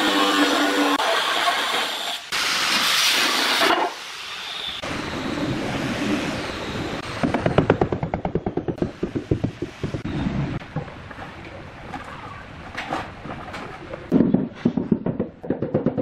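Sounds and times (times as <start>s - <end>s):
angle grinder cutting tile: 0.0s - 2.2s.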